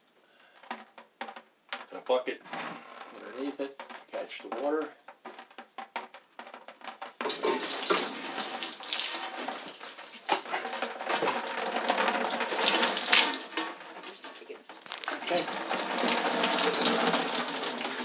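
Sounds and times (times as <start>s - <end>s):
water gushing from pipe: 7.2s - 18.0s.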